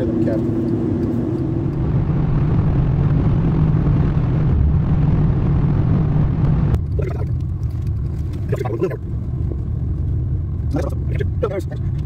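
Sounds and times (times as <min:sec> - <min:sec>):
low droning rumble: 0:00.0 - 0:12.0.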